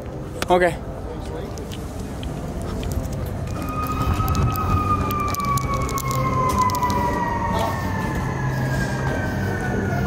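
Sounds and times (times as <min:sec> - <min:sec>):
city traffic rumble: 0:00.0 - 0:10.0
siren wailing: 0:03.4 - 0:10.0.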